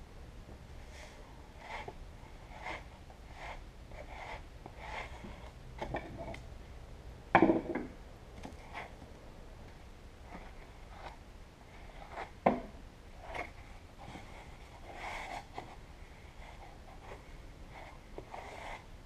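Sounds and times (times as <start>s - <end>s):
knock: 7.4s - 7.9s.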